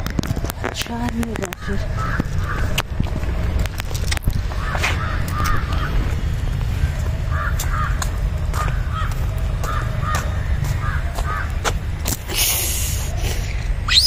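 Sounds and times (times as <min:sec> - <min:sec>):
steady low rumble: 0:00.0 - 0:14.0
crows cawing: 0:01.5 - 0:02.8, 0:04.5 - 0:06.1, 0:06.8 - 0:11.6.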